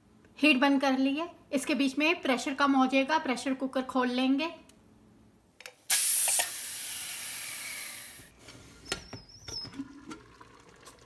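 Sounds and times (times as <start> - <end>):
pressure cooker steam hiss: 5.9 - 8.3.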